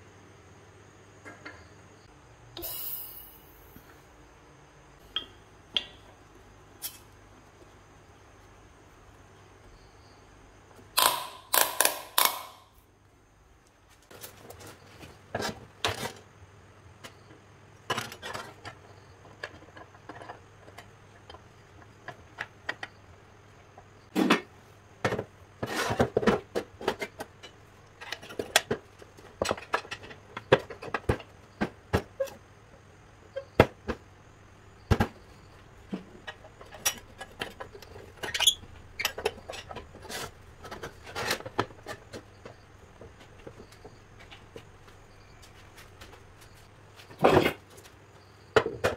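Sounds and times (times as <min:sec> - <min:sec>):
metal parts knocking and scraping: 0:17.9 - 0:23.0, 0:35.8 - 0:44.5.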